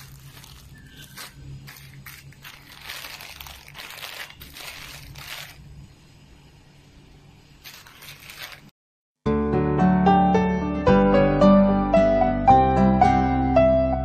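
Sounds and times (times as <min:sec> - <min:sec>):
plastic bags crinkling: 0:00.0 - 0:05.9, 0:07.6 - 0:08.8.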